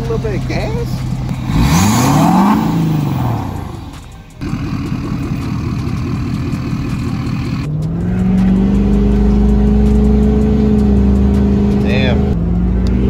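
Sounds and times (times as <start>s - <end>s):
diesel engine exhaust pulse: 0.0s - 13.0s
engine droning under acceleration: 0.0s - 13.0s.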